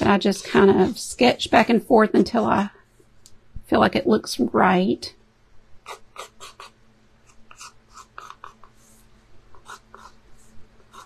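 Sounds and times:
chalk pencil scratching on canvas: 7.5s - 11.0s.

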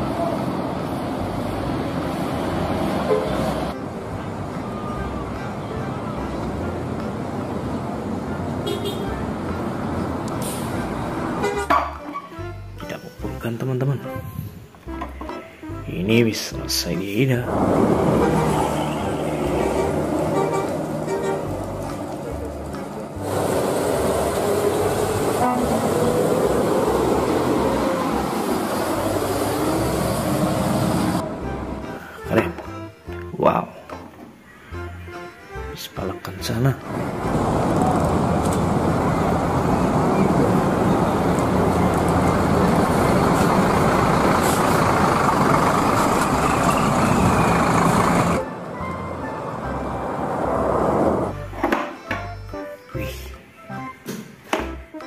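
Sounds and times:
tyres on wet road: 0.0s - 12.5s, 17.2s - 32.7s, 36.6s - 51.5s
bus engine: 0.0s - 13.4s, 16.8s - 32.2s, 36.3s - 51.6s.

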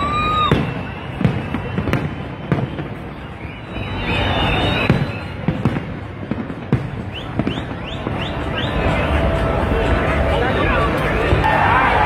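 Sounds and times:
rising firework whistles: 0.0s - 6.4s, 7.0s - 9.0s
fireworks bangs and crackling: 0.0s - 11.7s.

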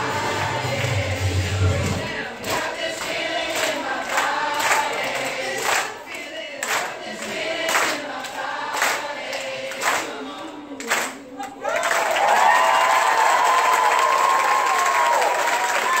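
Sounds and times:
children's choir singing: 0.0s - 11.6s.

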